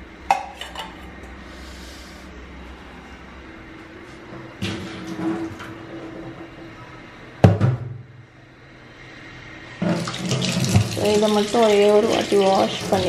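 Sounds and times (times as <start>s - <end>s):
tap water running into sink: 9.8s - 13.0s.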